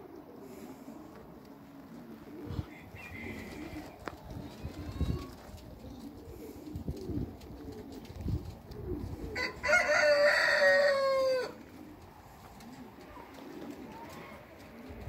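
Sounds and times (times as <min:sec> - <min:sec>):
rooster crowing: 0:02.6 - 0:03.9, 0:09.4 - 0:11.6.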